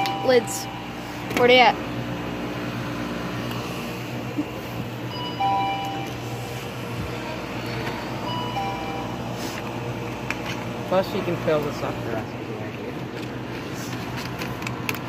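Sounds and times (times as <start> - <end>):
two-note door chime: 0.0 - 1.2, 5.1 - 6.6, 8.2 - 9.4
steady low hum: 0.0 - 15.0.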